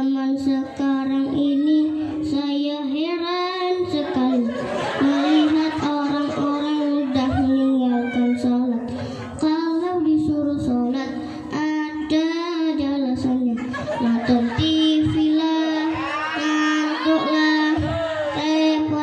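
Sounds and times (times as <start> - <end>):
boy singing into microphone: 0.0 - 19.0
breaths between phrases: 11.1 - 11.6.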